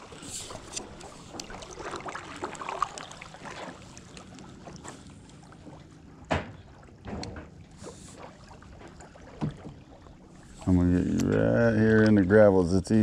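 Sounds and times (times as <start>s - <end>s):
paddle splashing in water: 0.0s - 12.4s
light clicks and knocks: 6.3s - 7.6s.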